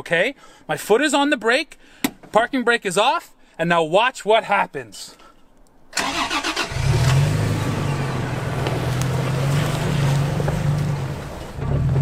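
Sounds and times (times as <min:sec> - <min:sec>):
starter motor cranking: 0:06.0 - 0:07.4
truck engine running: 0:06.0 - 0:12.0.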